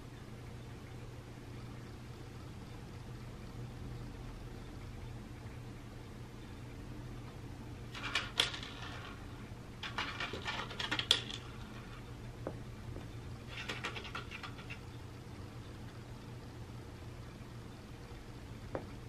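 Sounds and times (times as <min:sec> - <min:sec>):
dry kibble rattling on plastic: 0:07.9 - 0:12.0, 0:13.5 - 0:14.8.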